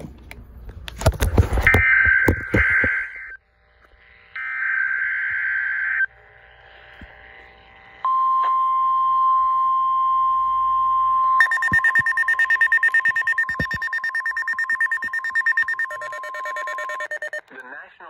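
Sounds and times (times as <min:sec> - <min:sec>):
rapid high beeping alarm: 0:08.1 - 0:17.5
steady alert tone: 0:11.4 - 0:17.4.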